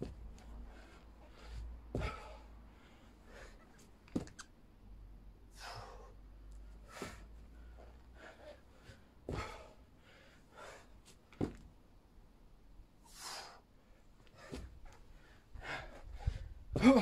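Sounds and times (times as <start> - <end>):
man breathing hard: 0.4 - 3.7, 5.5 - 11.1, 13.1 - 17.0.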